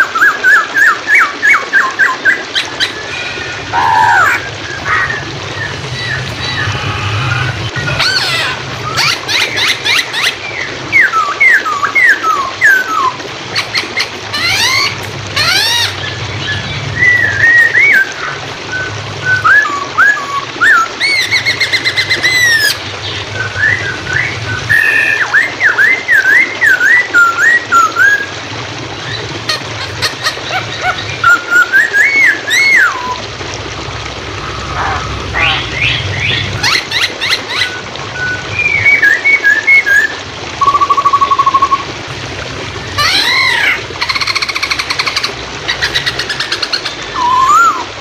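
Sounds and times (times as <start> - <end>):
running water: 0.0 - 48.0
bird singing whistled phrases: 17.0 - 21.4, 37.5 - 41.8, 47.2 - 47.9.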